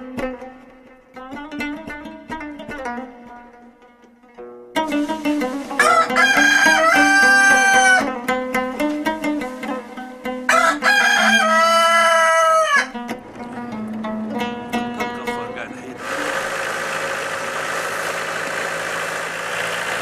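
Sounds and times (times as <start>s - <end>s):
plucked-string music: 0.0s - 20.0s
rooster crowing: 5.8s - 8.2s, 10.5s - 13.0s.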